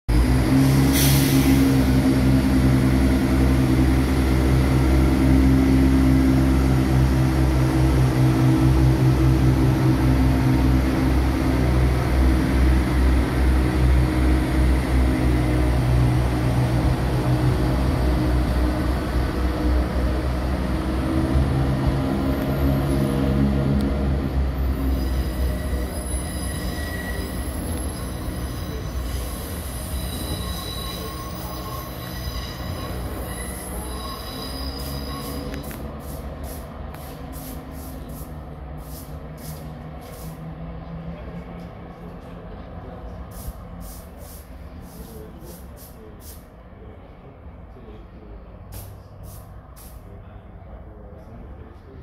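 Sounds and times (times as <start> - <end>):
train diesel engine drone: 0.1 - 52.0
high wheel squeal: 24.4 - 37.2.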